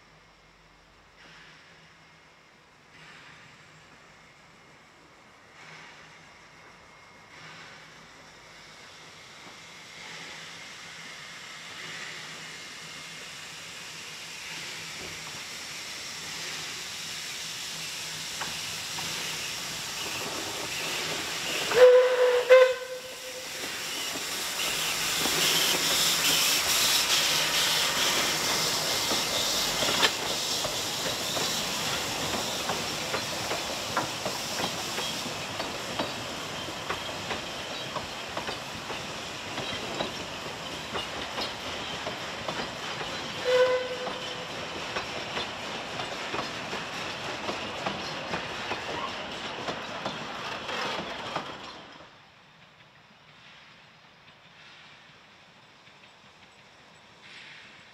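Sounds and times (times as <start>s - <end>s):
steam locomotive hiss and exhaust: 0.0s - 57.9s
train wheels clicking over rail joints: 11.7s - 57.9s
steam whistle blasts: 21.5s - 23.8s, 43.3s - 44.5s.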